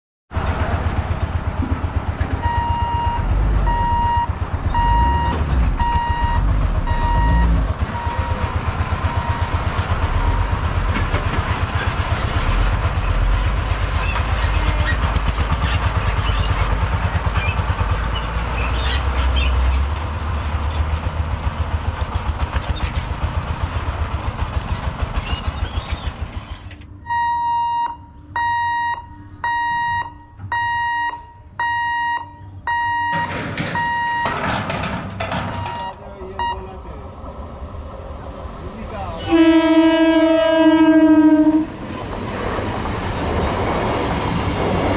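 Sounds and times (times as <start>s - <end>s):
lorry diesel engine: 0.3s - 44.9s
road traffic: 0.3s - 44.9s
level crossing warning buzzer: 2.4s - 10.7s, 27.0s - 34.4s
steady beeping: 2.4s - 10.9s, 26.9s - 34.5s, 35.5s - 36.8s.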